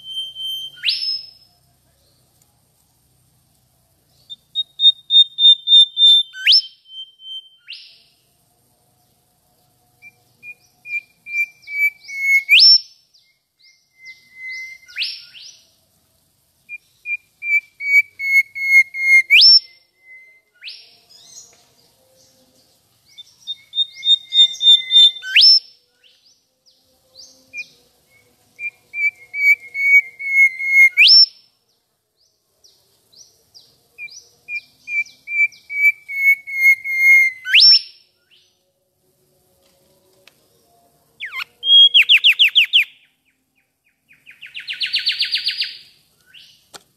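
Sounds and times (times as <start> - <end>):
bird whistling song: 0.0 - 1.5, 4.1 - 8.2, 10.0 - 15.7, 16.7 - 21.6, 23.0 - 31.5, 32.6 - 38.6, 41.2 - 46.6.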